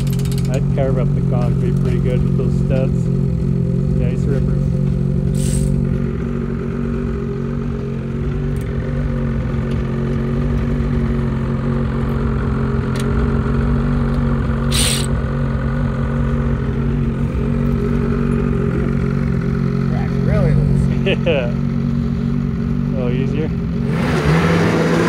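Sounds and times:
snowmobile engine idling: 0.0s - 23.9s
brief hiss: 5.4s - 5.7s, 14.7s - 15.1s.

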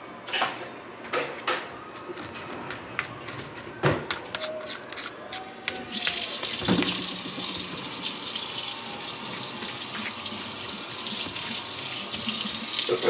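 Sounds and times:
water running from tap: 5.9s - 13.0s.

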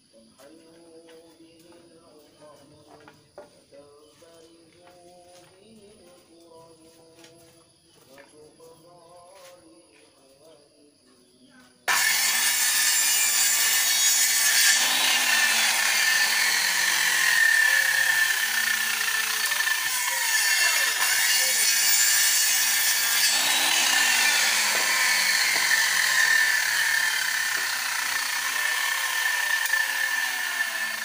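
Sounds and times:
circular saw cutting wood: 11.9s - 31.0s.

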